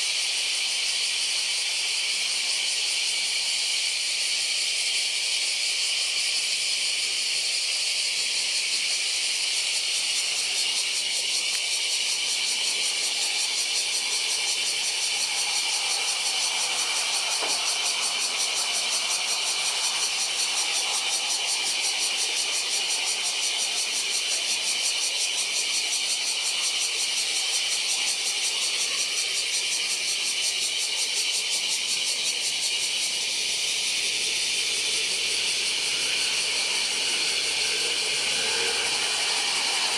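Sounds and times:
high buzzing hiss: 0.0 - 39.9
distant jet airliner rumble: 34.1 - 39.9.

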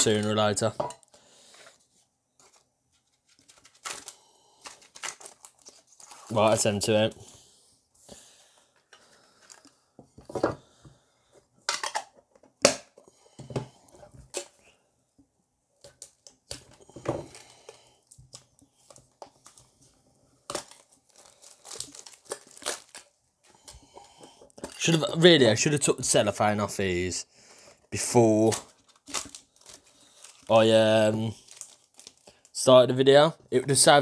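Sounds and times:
cellophane wrap crinkling: 2.4 - 6.8, 20.4 - 23.2, 28.0 - 32.7.

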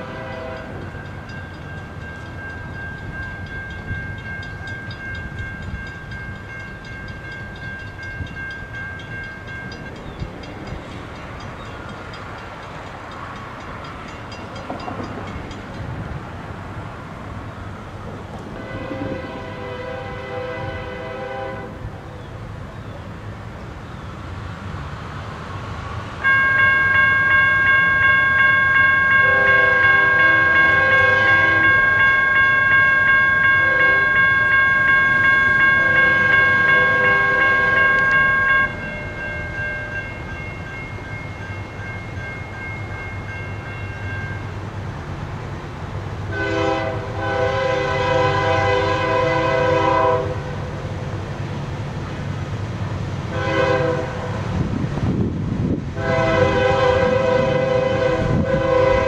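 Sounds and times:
locomotive horn blasts: 0.0 - 1.0, 18.6 - 21.9, 26.2 - 39.4, 46.3 - 50.7, 53.3 - 54.6, 56.0 - 59.0
crossing warning bell ringing: 0.0 - 21.8, 26.2 - 59.0
low rumble of locomotive: 0.0 - 59.0.

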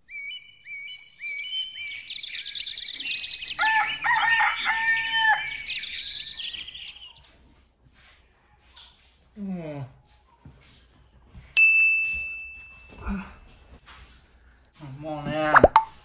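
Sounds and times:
small birds chirping: 0.0 - 11.4
rooster crowing: 3.1 - 6.7.

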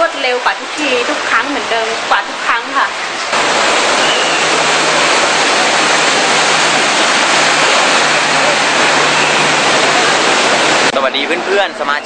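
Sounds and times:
water rushing: 0.0 - 12.0
truck engine hum: 3.4 - 11.5.

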